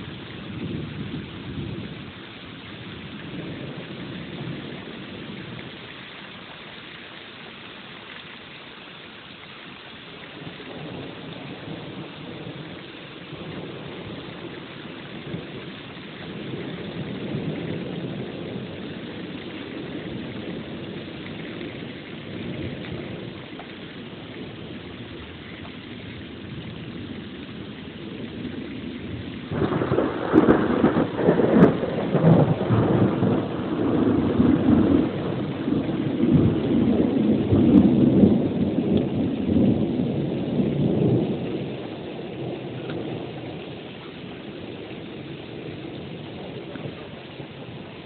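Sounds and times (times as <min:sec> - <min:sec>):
thunder cracking and rumbling: 0:00.0 - 0:02.1, 0:02.8 - 0:05.8, 0:10.4 - 0:48.0
steady rain: 0:00.0 - 0:48.0.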